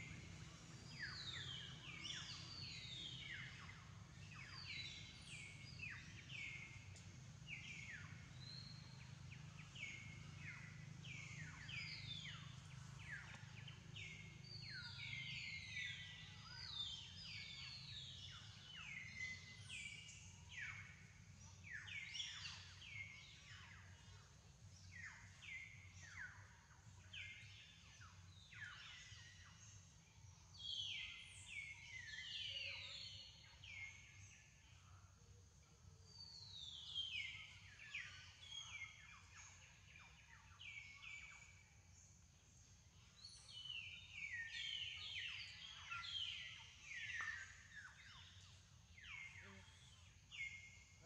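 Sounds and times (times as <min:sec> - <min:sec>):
low background hum: 0:00.0 - 0:32.3
birds chirping: 0:00.0 - 0:34.8, 0:36.1 - 0:51.0.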